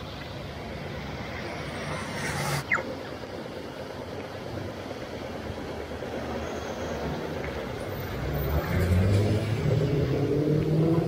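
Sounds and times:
rain hissing: 0.0 - 10.8
vehicle engine accelerating: 0.8 - 3.0, 8.2 - 11.0.

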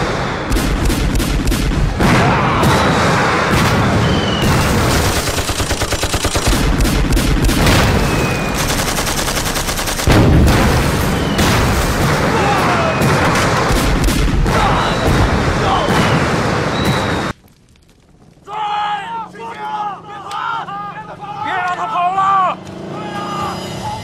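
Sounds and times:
rifle shots: 0.0 - 17.3
machine-gun burst: 2.7 - 17.3.

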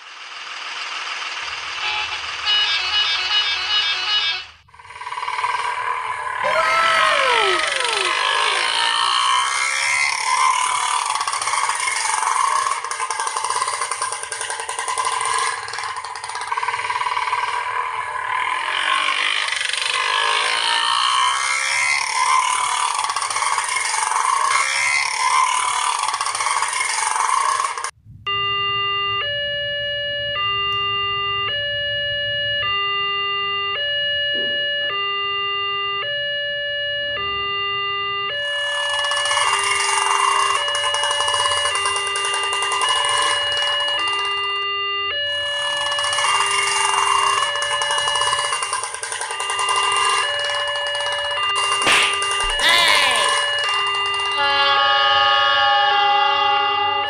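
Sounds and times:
rattly two-stroke engine running: 0.0 - 3.6, 4.7 - 6.5, 8.1 - 27.9, 38.7 - 44.5, 45.6 - 52.7
level crossing two-tone alarm: 0.1 - 57.0.

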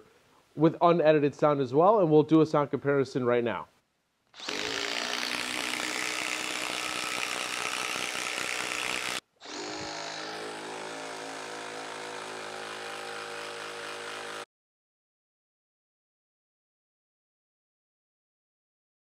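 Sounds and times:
impact driver humming: 4.4 - 14.4.

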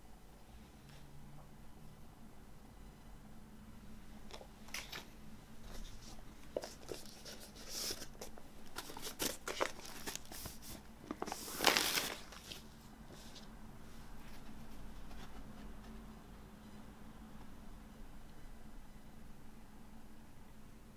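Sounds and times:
paper sleeve rustling: 4.7 - 13.5.

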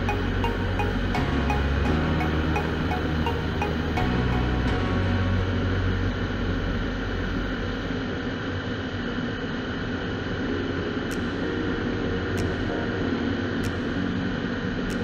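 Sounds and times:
motorcycle engine drone: 0.0 - 9.2.

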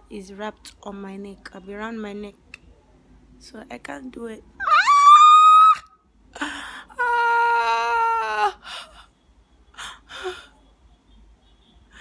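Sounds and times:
woman wailing in pain: 4.6 - 5.9, 7.0 - 8.6.

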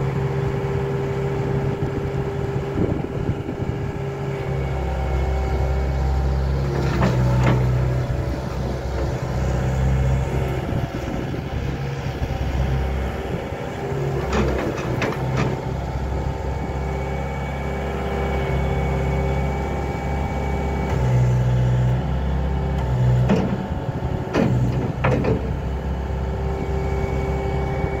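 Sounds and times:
loader diesel engine running: 0.0 - 28.0
sharp knocks from loader: 23.2 - 23.6, 24.3 - 25.6.

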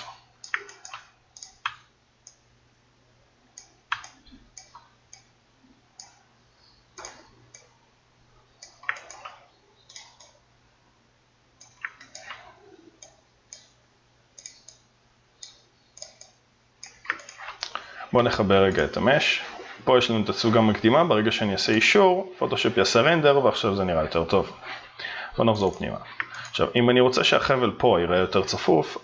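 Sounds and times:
computer mouse clicking: 0.0 - 2.4, 3.6 - 5.3, 6.0 - 6.2, 7.0 - 7.7, 8.6 - 10.4, 11.6 - 13.8, 14.4 - 17.8, 25.7 - 26.6
faint steady hum: 0.0 - 29.0
keyboard clicking: 0.4 - 2.4, 3.6 - 5.3, 7.0 - 7.7, 8.6 - 10.4, 11.6 - 13.8, 15.4 - 17.7.

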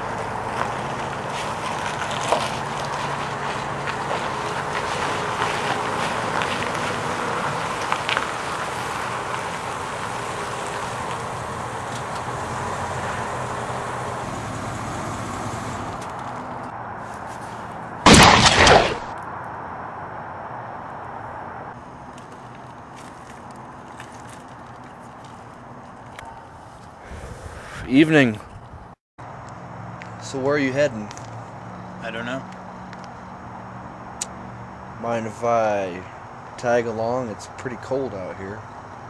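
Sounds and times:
loud sudden bang: 18.1 - 19.1.

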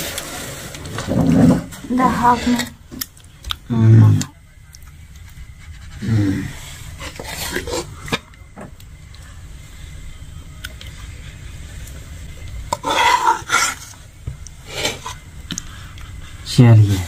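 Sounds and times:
ladle scraping metal pot: 7.0 - 8.2, 12.7 - 14.0.

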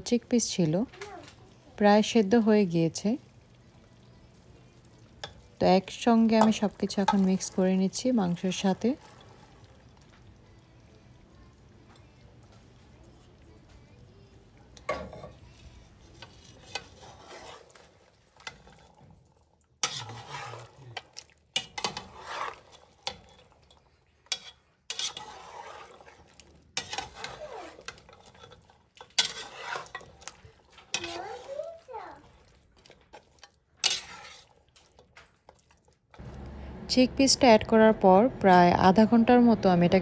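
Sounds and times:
metal spoon scraping a metal pot: 5.2 - 9.4, 14.8 - 19.1, 19.8 - 31.7, 32.8 - 35.3.

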